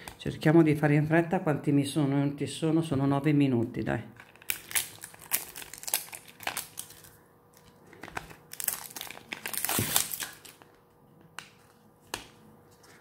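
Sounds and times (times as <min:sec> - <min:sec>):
cardboard box crinkling: 0:04.3 - 0:07.1, 0:08.0 - 0:10.6.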